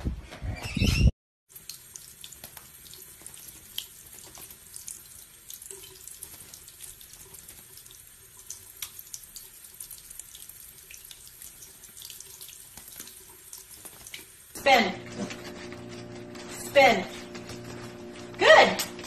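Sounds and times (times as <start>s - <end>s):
small splashes and drips: 1.5s - 14.6s
tap water running into sink: 1.5s - 14.6s.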